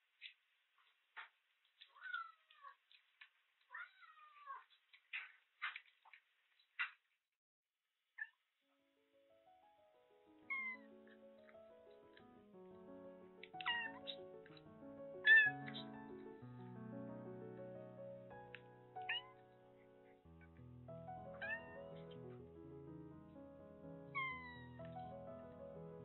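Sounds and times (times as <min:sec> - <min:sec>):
soft background music: 0:09.2 - 0:26.0
kitten mewing: 0:13.5 - 0:14.2, 0:15.2 - 0:15.9, 0:19.0 - 0:19.4, 0:24.2 - 0:24.9.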